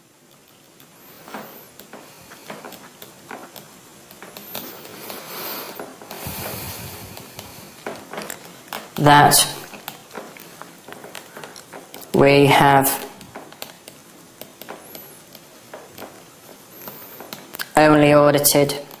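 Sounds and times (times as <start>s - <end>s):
pen scratching and tapping: 0.2s - 5.2s, 12.9s - 17.6s.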